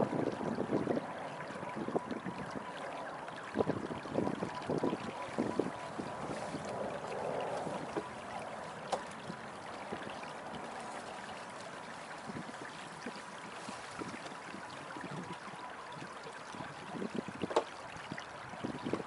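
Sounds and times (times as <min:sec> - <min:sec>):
water trickling along boat hull: 0:00.0 - 0:19.0
light knocks: 0:17.4 - 0:17.7.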